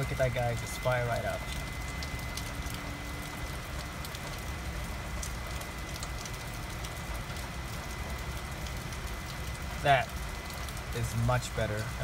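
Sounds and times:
high-pitched whine: 0.0s - 4.4s
avionics hiss and hum: 0.0s - 12.0s.

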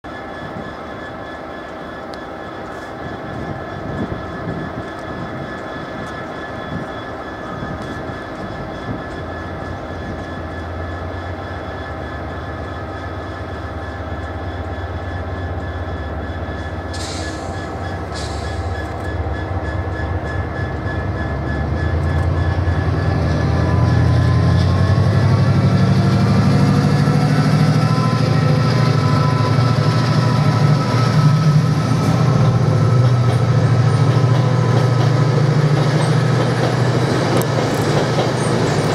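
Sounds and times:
diesel locomotive engine throbbing: 0.1s - 38.9s
brief hisses: 16.9s - 18.8s.

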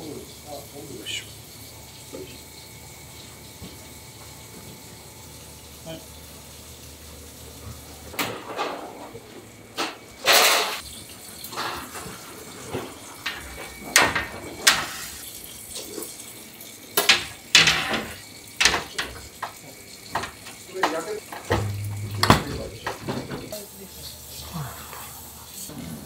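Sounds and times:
metal baking sheets clattering: 8.2s - 9.2s, 9.8s - 10.8s, 11.5s - 15.2s, 17.0s - 23.6s.

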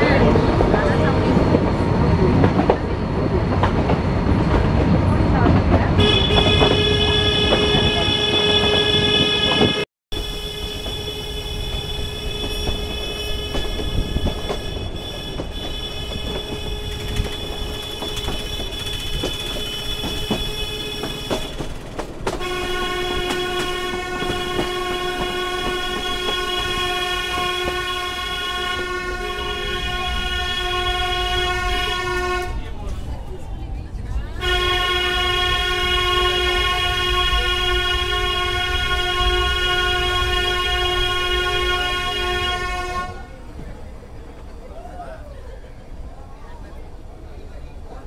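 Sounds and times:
train wheels rumbling: 0.0s - 48.0s
high-pitched train tone: 5.4s - 43.4s.

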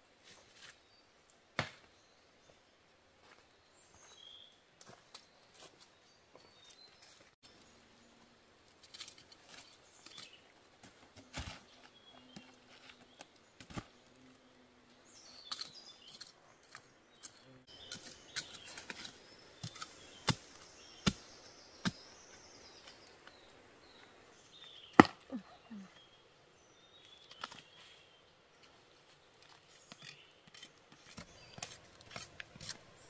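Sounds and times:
birds chirping faintly: 0.2s - 33.0s
dry leaves and soil crackling: 3.2s - 33.0s.

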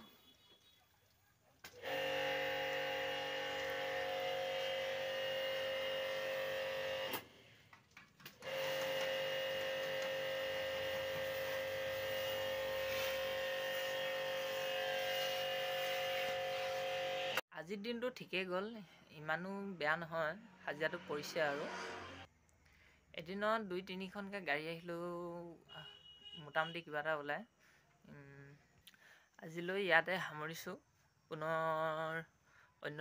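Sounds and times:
pressure washer running: 1.6s - 7.2s, 8.4s - 17.4s.

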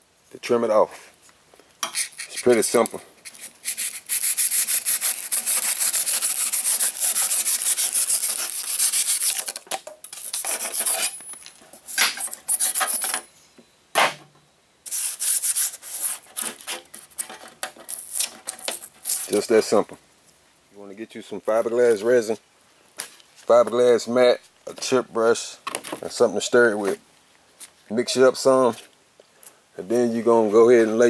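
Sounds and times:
knife sawing through foam: 3.7s - 9.5s.

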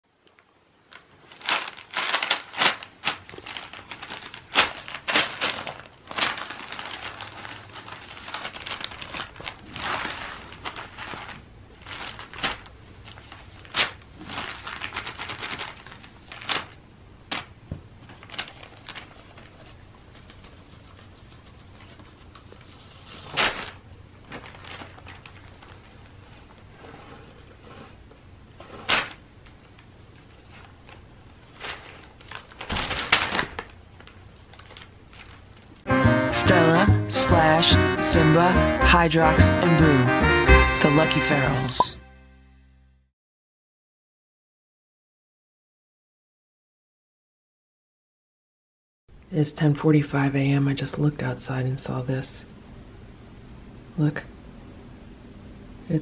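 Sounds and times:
paper crinkling and crackling: 0.2s - 35.9s.

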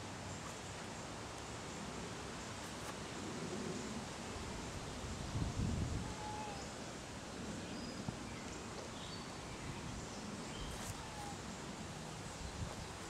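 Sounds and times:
steady hiss: 0.0s - 13.0s
faint bird chirps: 7.6s - 11.4s.

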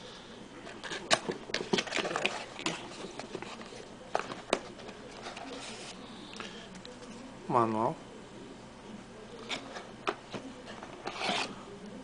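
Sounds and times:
packaging rustling: 0.7s - 5.9s.

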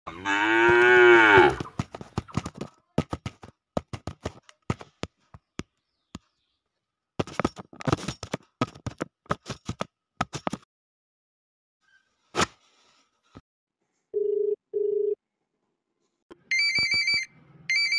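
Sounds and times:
cow mooing: 0.1s - 1.7s.

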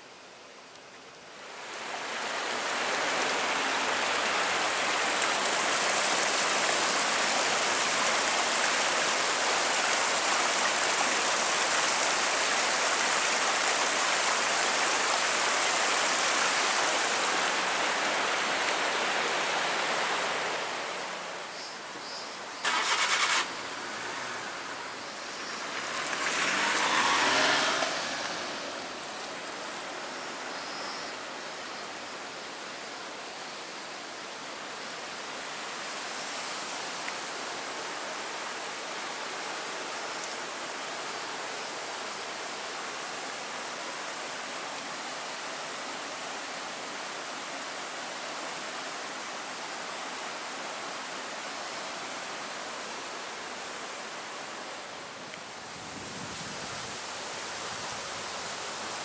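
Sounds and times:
stream rushing over rocks: 0.0s - 59.0s
car passing: 22.6s - 30.5s.

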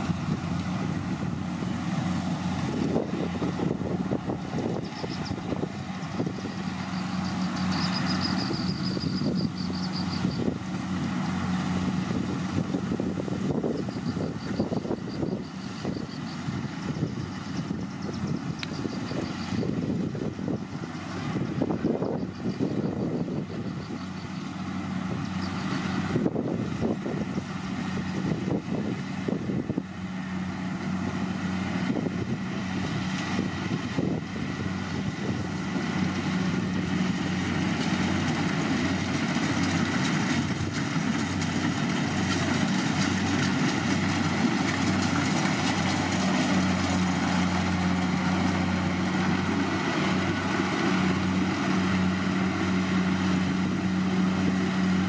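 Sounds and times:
diesel engine hum: 0.0s - 55.0s.

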